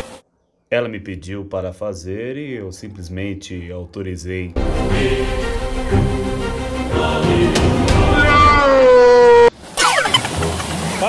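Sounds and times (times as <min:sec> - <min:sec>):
music: 0:04.6 - 0:08.6.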